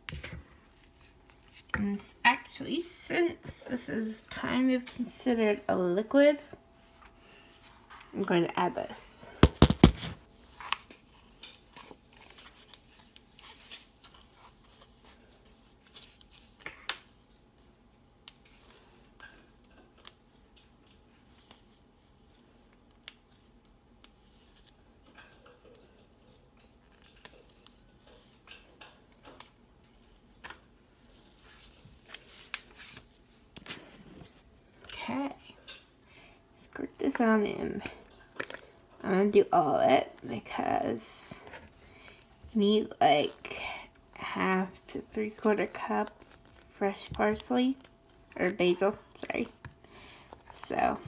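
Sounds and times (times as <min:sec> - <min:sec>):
phone handling clicks and rustles: 0:09.4 - 0:10.2.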